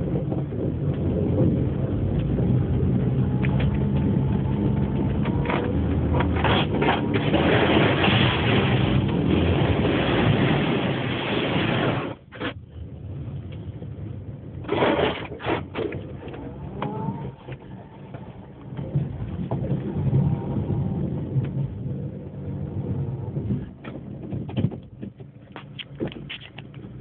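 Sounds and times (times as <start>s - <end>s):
car engine pulling: 0.0s - 27.0s
knocks from underneath car: 23.8s - 26.6s.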